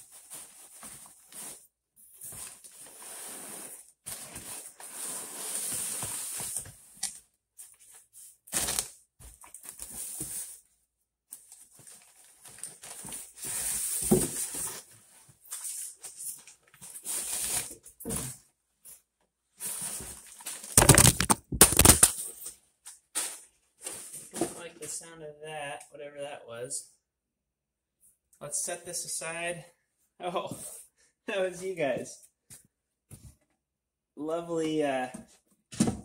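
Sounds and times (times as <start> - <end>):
packing paper rustling: 19.6 - 22.3.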